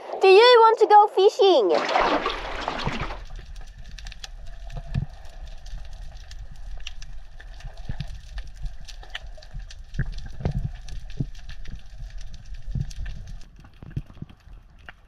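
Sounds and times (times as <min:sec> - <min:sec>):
underwater low rumble: 0:02.0 - 0:15.0
sharp clicks and crackles: 0:03.1 - 0:15.0.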